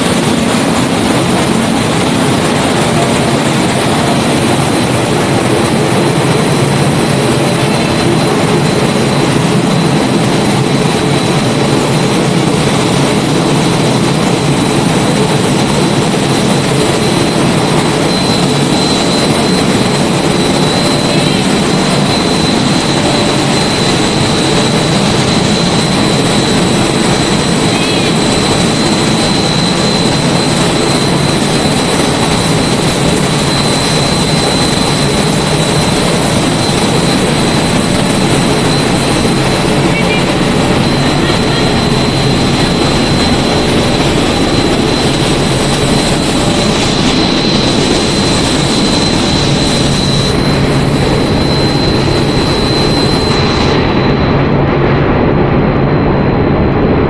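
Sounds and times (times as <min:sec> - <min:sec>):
high-pitched mechanical whine: 0:00.0 - 0:57.0
production line machinery running: 0:00.0 - 0:57.0.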